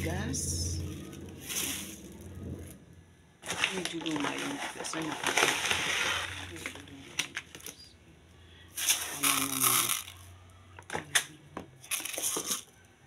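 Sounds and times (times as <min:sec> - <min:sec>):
low hum of a voice: 0:00.0 - 0:02.7, 0:06.3 - 0:11.9
rustling: 0:00.6 - 0:08.0.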